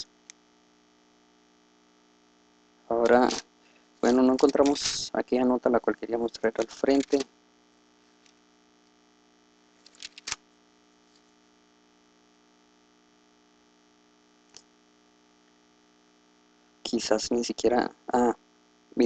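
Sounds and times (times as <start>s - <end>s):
electrical hum: 0.0s - 19.0s
clicks: 6.6s - 7.3s.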